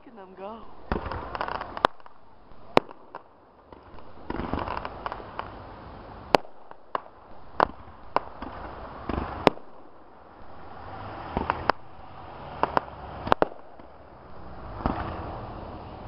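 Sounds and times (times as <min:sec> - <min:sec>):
fireworks bangs: 0:00.0 - 0:15.7
fireworks rushing and crackling: 0:00.0 - 0:16.0.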